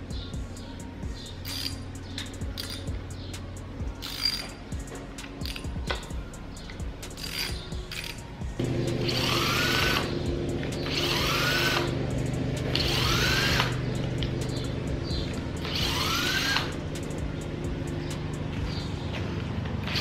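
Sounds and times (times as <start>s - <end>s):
cordless drill spinning: 9.0s - 12.0s, 12.7s - 14.3s, 15.3s - 16.8s.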